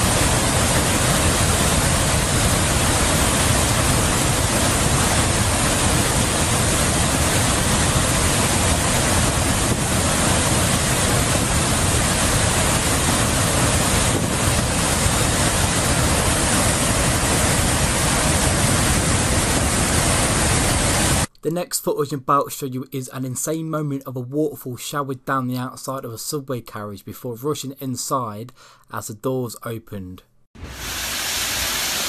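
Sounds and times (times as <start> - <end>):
river pouring over waterfall: 0.0 - 21.3, 30.7 - 32.0.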